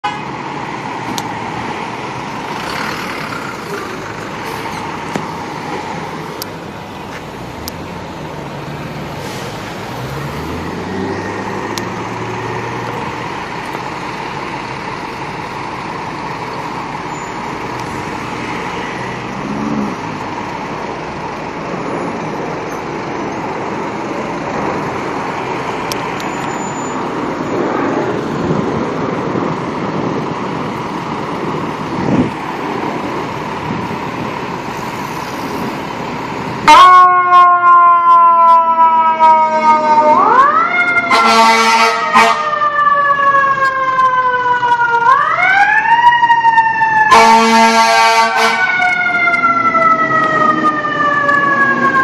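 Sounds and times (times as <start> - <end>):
traffic engines rumbling: 0.0 - 52.0
engine revving: 2.3 - 5.0, 7.5 - 13.7, 17.6 - 20.7.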